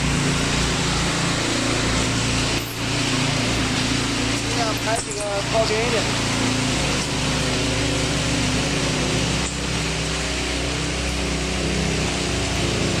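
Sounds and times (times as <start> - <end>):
power trowel engine humming: 0.0 - 13.0
trowel pans scraping concrete: 1.9 - 7.6.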